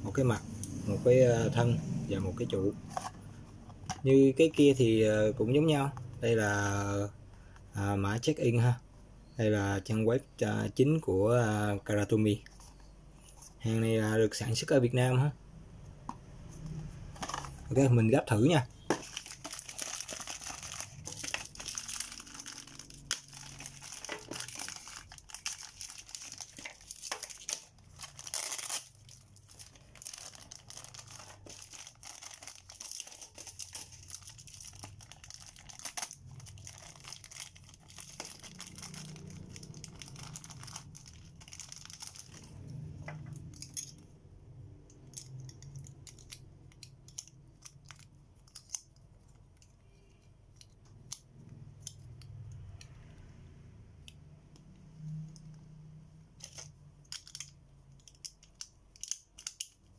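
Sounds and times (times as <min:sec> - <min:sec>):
plastic bag crinkling: 0:17.1 - 0:42.6, 0:45.1 - 0:49.6, 0:56.4 - 0:59.9
small plastic parts clicking: 0:56.4 - 0:59.9.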